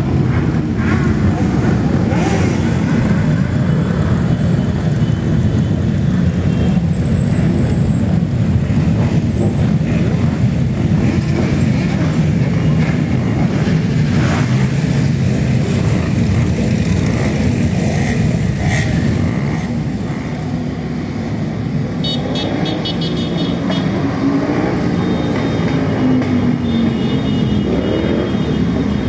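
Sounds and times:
motorcycles revving past: 0:00.0 - 0:04.4, 0:08.4 - 0:26.9.

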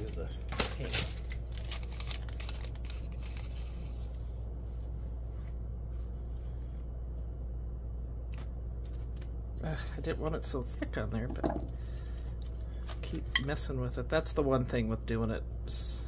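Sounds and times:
paper rustling: 0:00.0 - 0:04.1
steady low hum: 0:00.0 - 0:16.0.

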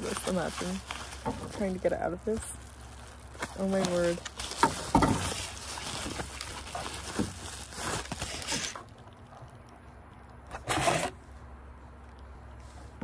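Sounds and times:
packaging rustling and crinkling: 0:00.0 - 0:09.7.

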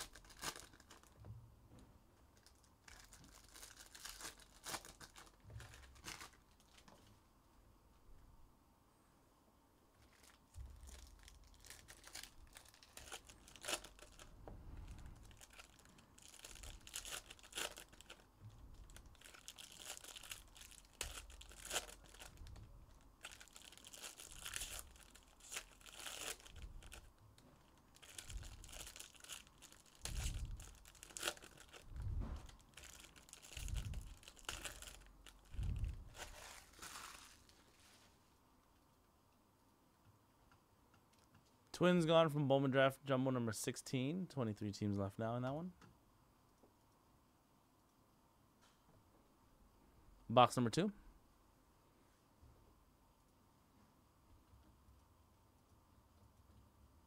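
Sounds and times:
trading cards crinkling and rustling: 0:00.0 - 0:01.2, 0:02.3 - 0:07.1, 0:10.0 - 0:38.2.

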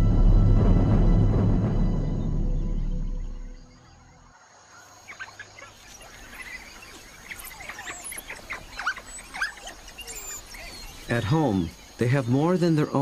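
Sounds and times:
wild dogs twittering: 0:04.3 - 0:13.0.

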